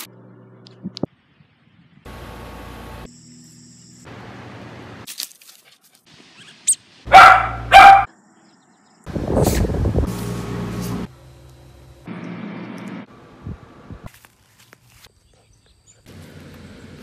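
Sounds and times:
dog barking: 7.1 - 8.1.

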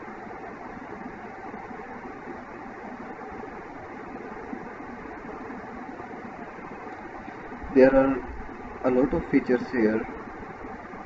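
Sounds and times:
background hiss: 0.0 - 11.0
faint hum: 0.0 - 11.0.

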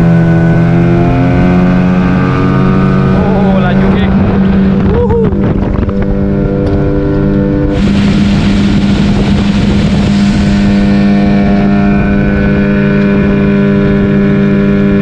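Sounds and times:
outboard motor running: 0.0 - 15.0
water spraying off hull: 7.7 - 12.9.

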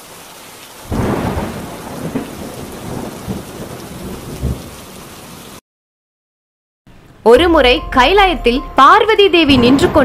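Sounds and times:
steady rain: 0.0 - 5.6
thunder rolling: 0.9 - 4.8, 9.3 - 10.0.

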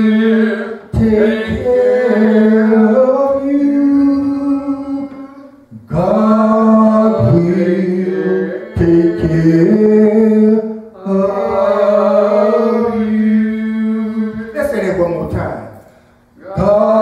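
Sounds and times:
man singing into a microphone: 0.0 - 11.2.

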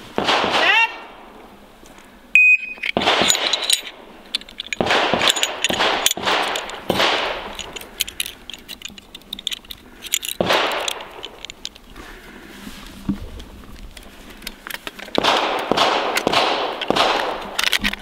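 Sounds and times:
metallic clicks of gun parts: 1.9 - 12.0, 13.3 - 18.0
shot timer beep: 2.4 - 2.8.

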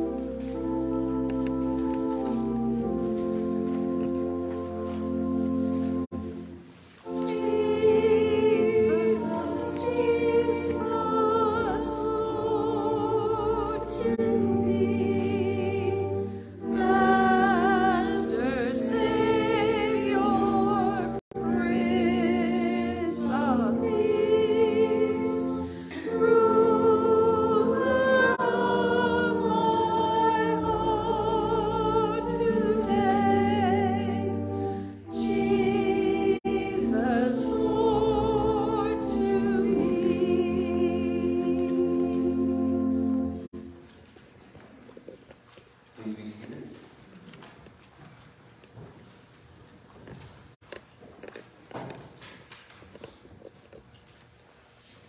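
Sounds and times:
organ: 0.0 - 43.8
person singing with vibrato: 7.1 - 43.6.

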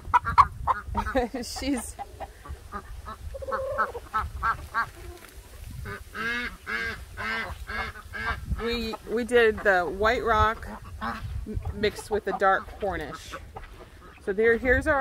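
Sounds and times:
ducks quacking: 0.0 - 5.2, 5.8 - 14.3
chickens clucking: 0.0 - 15.0.

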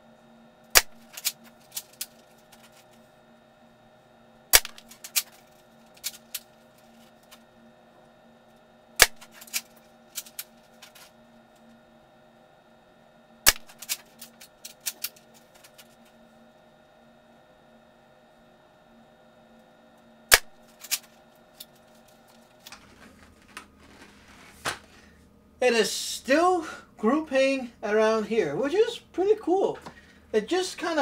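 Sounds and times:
airsoft rifle shots: 0.7 - 1.0, 9.0 - 9.4, 13.4 - 13.8, 20.3 - 20.6.

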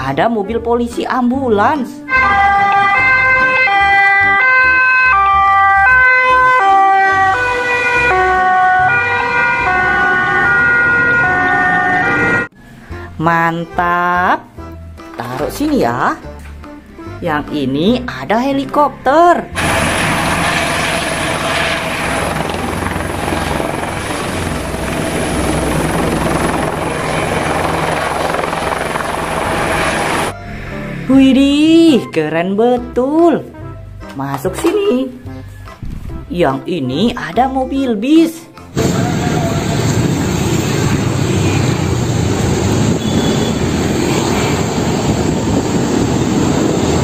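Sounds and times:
road noise: 2.1 - 13.0, 18.6 - 31.8, 38.8 - 47.0
helicopter hovering with high whine: 19.5 - 30.4, 38.8 - 47.0
bus diesel engine rumble: 38.8 - 47.0.

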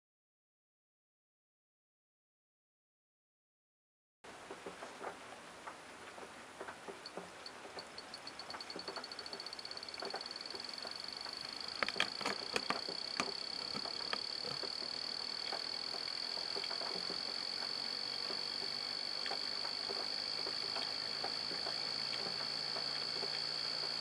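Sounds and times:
motor ticking rattle and whine: 7.0 - 24.0
sharp clicks: 7.1 - 24.0.

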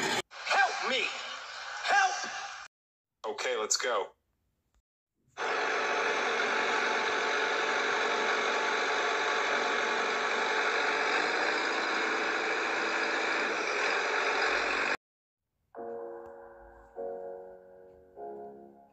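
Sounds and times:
toy excavator whirring: 5.4 - 15.0.

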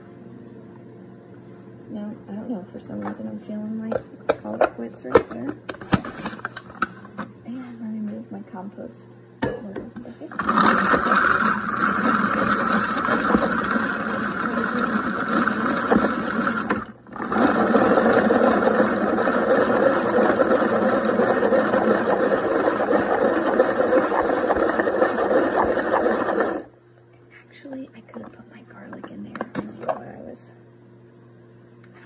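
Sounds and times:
hand-cranked food chopper chopping: 10.3 - 26.6.

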